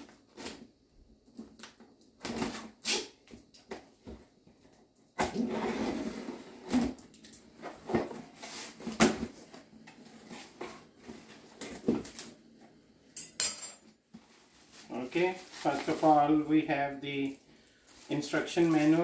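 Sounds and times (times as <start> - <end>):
packaging rustling and scraping: 5.4 - 12.5, 14.0 - 16.5, 17.2 - 19.0.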